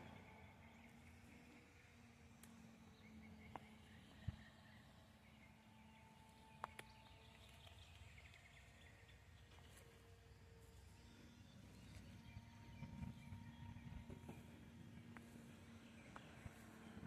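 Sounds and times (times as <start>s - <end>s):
faint outdoor hum: 0.0s - 17.0s
soft clicks: 6.4s - 8.4s.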